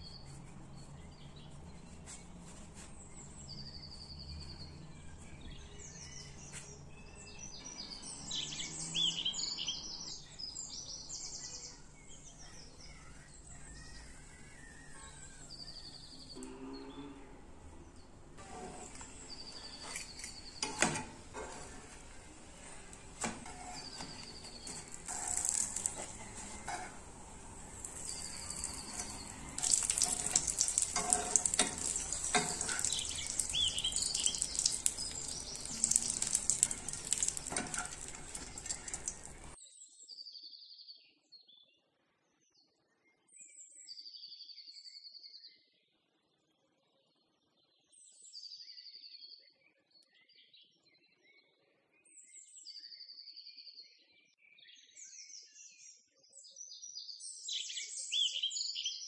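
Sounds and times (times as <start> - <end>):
food sizzling in a frying pan: 18.4 - 39.6.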